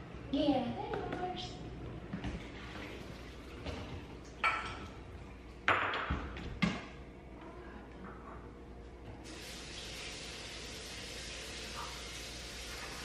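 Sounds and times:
dishes clinking: 0:04.4 - 0:05.0.

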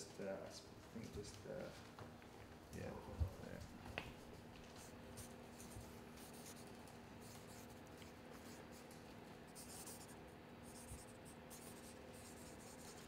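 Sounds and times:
steady low hum: 0:00.0 - 0:13.0
marker scratching on fabric: 0:04.8 - 0:13.0.

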